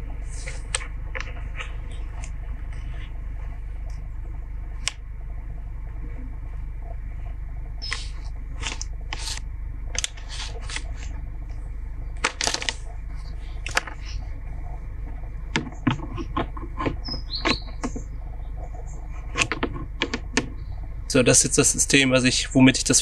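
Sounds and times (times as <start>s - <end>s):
steady low hum: 0.0s - 23.0s
plastic part scraping and clicking: 15.6s - 18.0s, 19.3s - 20.5s.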